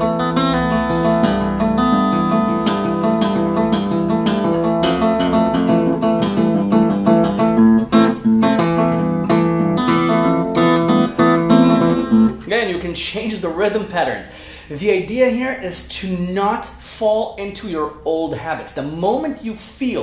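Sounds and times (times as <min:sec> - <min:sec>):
fingerpicked acoustic guitar: 0:00.0 - 0:12.4.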